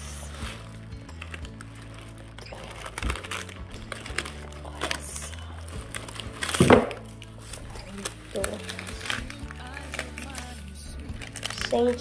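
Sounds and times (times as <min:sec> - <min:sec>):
tissue paper crinkling: 0:00.0 - 0:12.0.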